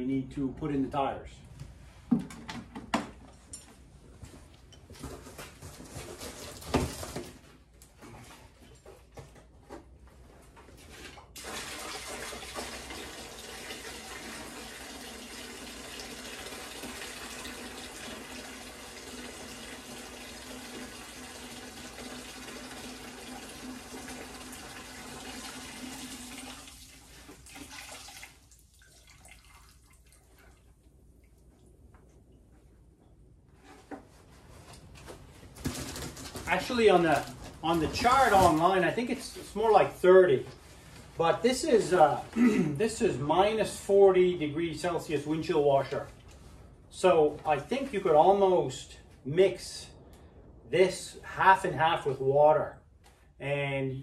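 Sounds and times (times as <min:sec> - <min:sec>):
liquid pouring into bucket: 0:10.9 - 0:31.4.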